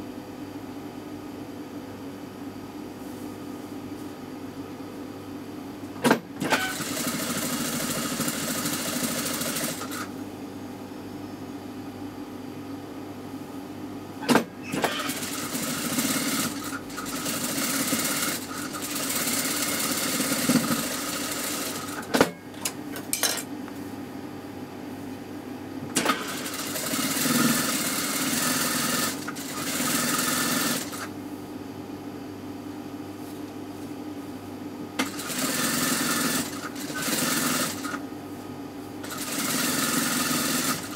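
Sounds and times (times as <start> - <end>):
sewing machine stitching: 6.0 - 10.1, 14.3 - 22.1, 26.0 - 31.1, 35.0 - 38.0, 39.0 - 40.9
sewing machine clicks: 35.0 - 38.0.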